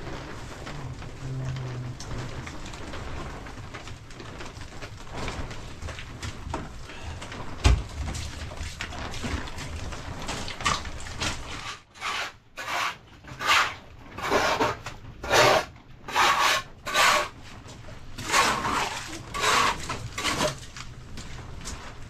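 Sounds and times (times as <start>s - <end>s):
rough rasping strokes: 11.6s - 17.4s, 18.2s - 20.6s.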